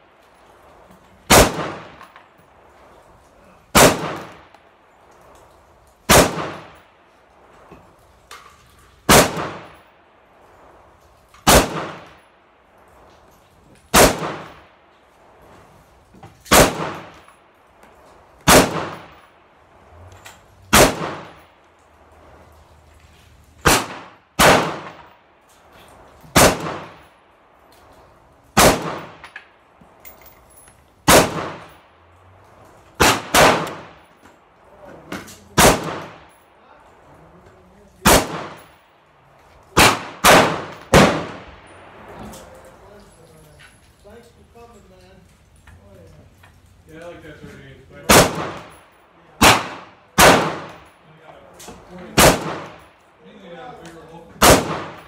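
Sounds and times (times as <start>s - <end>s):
rifle shots with ringing echo: 1.3s - 2.7s, 3.7s - 4.7s, 6.0s - 7.1s, 9.0s - 10.2s, 11.4s - 12.5s, 13.9s - 14.9s, 16.5s - 17.7s, 18.4s - 19.8s, 20.7s - 22.3s, 23.6s - 25.3s, 26.2s - 27.2s, 28.5s - 29.8s, 31.0s - 32.0s, 33.0s - 34.2s, 35.5s - 36.6s, 38.0s - 42.8s, 48.0s - 51.0s, 51.7s - 53.2s, 54.4s - 55.0s.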